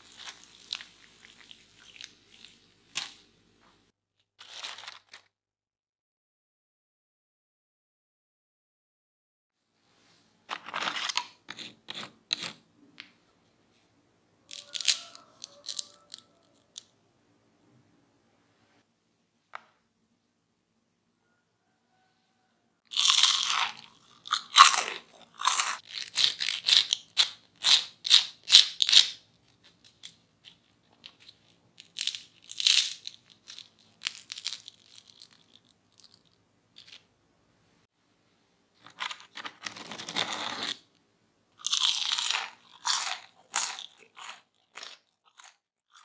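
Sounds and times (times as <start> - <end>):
crunching fried churros: 14.5 - 16.8, 22.9 - 37.0, 41.6 - 46.0.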